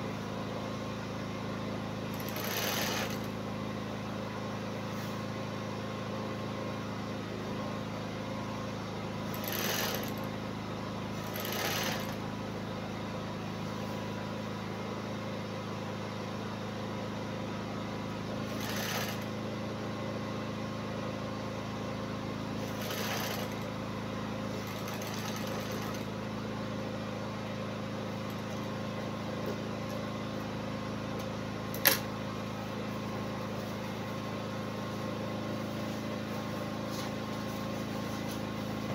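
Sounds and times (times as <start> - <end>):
sewing machine humming: 2.0 - 3.4, 9.2 - 10.5, 11.1 - 12.4, 18.4 - 19.4, 22.6 - 26.4, 28.1 - 28.8.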